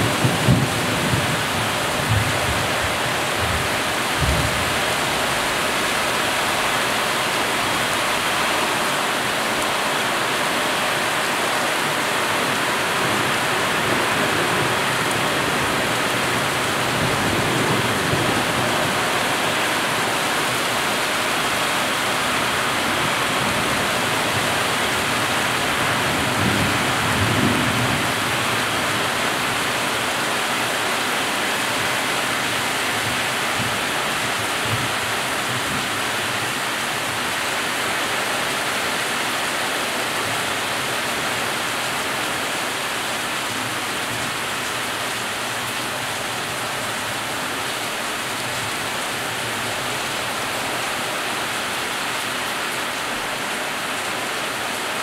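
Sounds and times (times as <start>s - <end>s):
low rumbles of thunder: 0.0s - 4.8s
heavy rain hissing: 0.0s - 55.0s.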